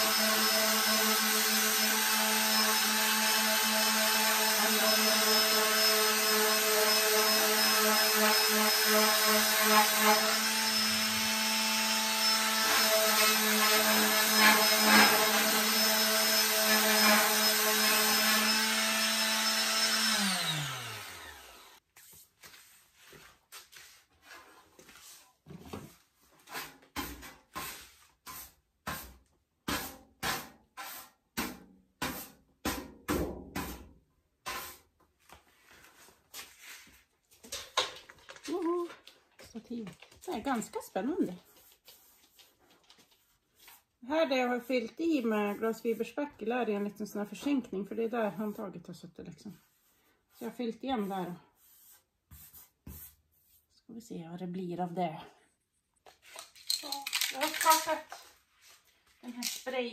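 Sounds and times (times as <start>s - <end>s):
electric sander running: 0.0s - 21.8s
sander motor winding down: 15.6s - 21.8s
brush sweeping dust: 21.9s - 25.3s, 51.0s - 53.7s.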